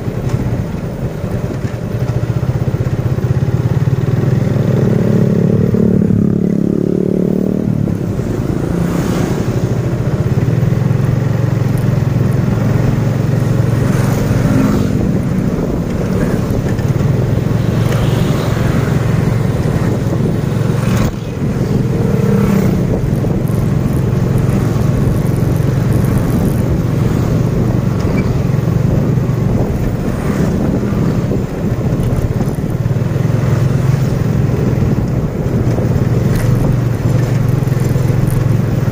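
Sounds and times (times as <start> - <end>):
motorcycle engine running: 0.0 - 38.9
road noise: 0.0 - 38.9.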